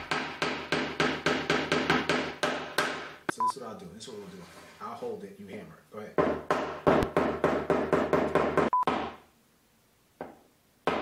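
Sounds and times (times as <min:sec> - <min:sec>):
hammer striking nail into wood: 0:00.0 - 0:03.2, 0:06.2 - 0:09.2.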